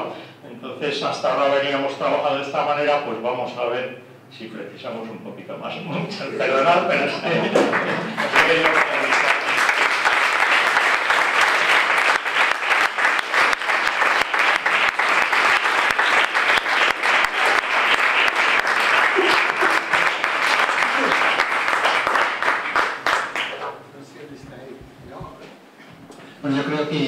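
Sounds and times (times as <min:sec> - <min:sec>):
audience applauding: 0:07.2 - 0:23.8.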